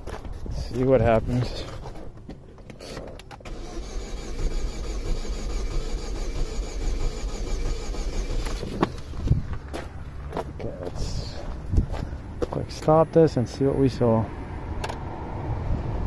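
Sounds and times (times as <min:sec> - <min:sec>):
engine cranking without starting: 0:02.6 - 0:09.3.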